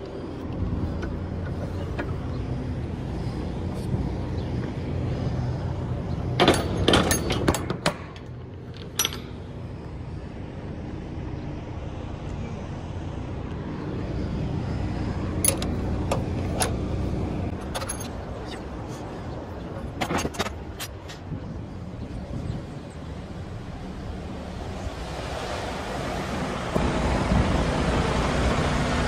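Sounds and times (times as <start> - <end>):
truck engine droning: 0.0 - 29.0
sharp clicks and knocks: 6.4 - 9.4, 15.4 - 16.8.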